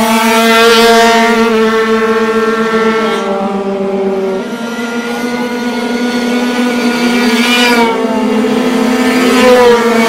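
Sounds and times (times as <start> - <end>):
steady dirt bike engine note: 0.0 - 10.0
dirt bikes accelerating past: 4.8 - 10.0.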